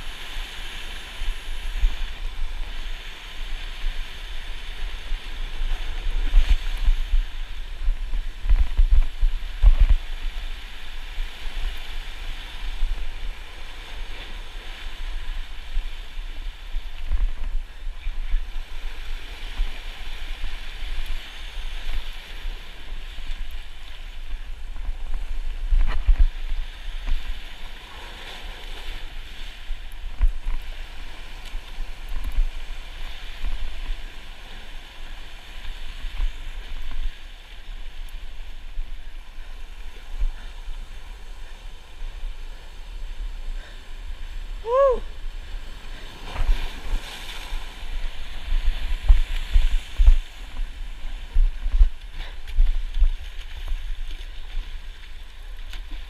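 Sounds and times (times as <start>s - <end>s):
surf washing over rocks: 0.0s - 56.0s
wind on microphone: 0.0s - 56.0s.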